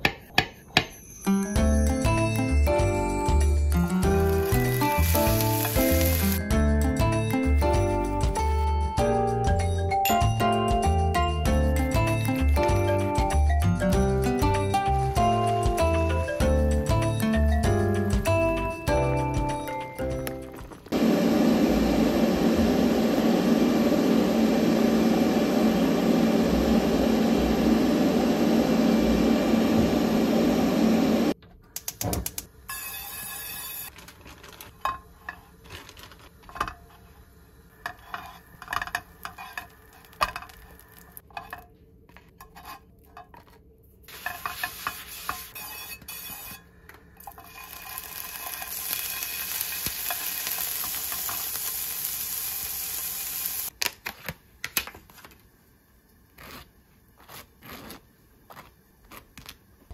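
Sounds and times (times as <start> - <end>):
shrimp sizzling in hot oil: 4.0 - 6.4, 47.2 - 53.7.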